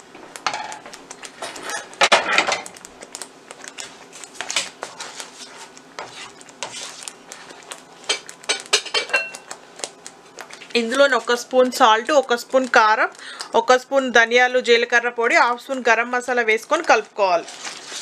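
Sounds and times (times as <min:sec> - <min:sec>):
plastic spoon scraping a pan: 0:03.6 - 0:08.6.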